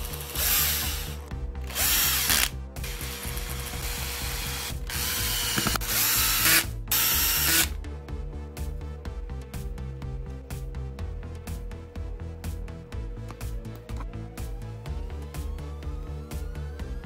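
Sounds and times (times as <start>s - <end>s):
background music: 0.0s - 17.0s
cordless drill driving screws: 0.1s - 1.1s, 1.7s - 7.7s.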